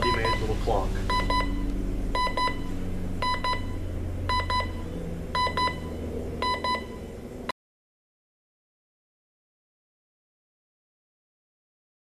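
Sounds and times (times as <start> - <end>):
alarm clock beeping: 0.0 - 7.1.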